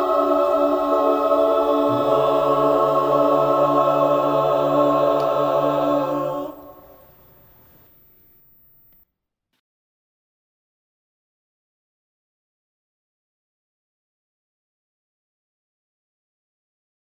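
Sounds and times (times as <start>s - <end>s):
choir holding a chord: 0.0s - 7.1s.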